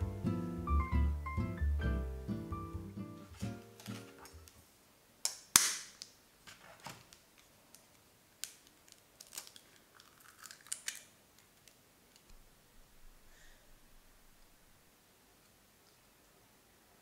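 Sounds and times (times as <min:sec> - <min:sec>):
egg cracking: 0:07.1 - 0:12.4.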